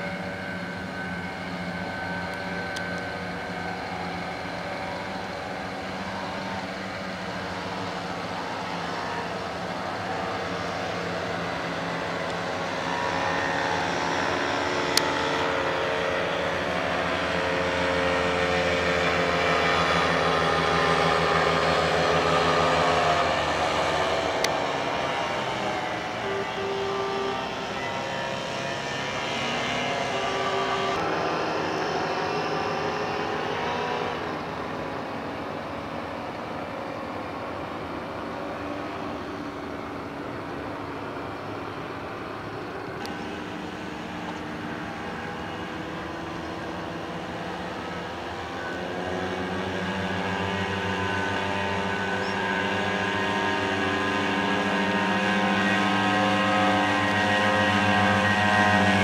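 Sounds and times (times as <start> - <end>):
paramotor engine buzzing: 0.0 - 59.0.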